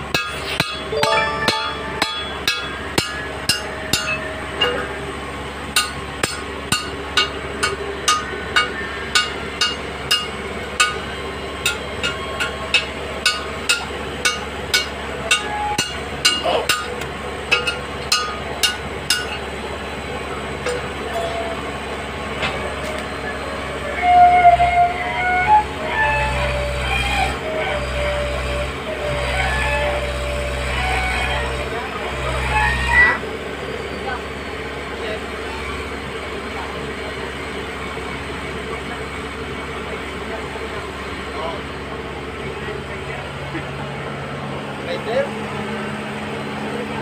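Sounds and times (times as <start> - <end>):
short high notes: 0.9 - 3.4.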